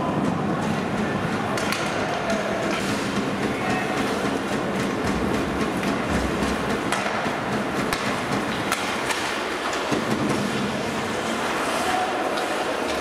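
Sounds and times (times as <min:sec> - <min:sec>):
arena noise: 0:00.0 - 0:13.0
hockey sticks and puck clacking: 0:00.0 - 0:13.0
skate blades scraping ice: 0:02.7 - 0:13.0.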